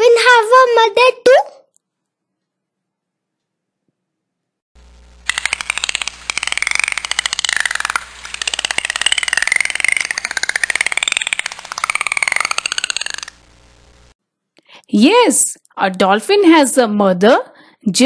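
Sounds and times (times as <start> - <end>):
dolphin clicking: 5.2 - 13.5.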